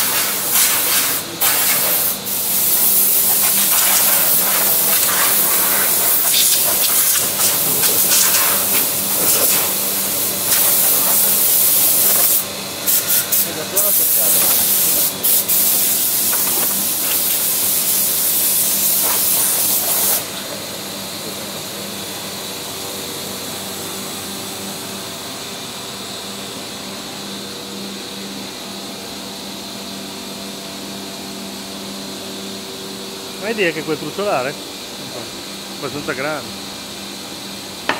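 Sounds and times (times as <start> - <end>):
escaping air hiss: 0.0 - 20.3
workshop machinery humming: 0.0 - 37.9.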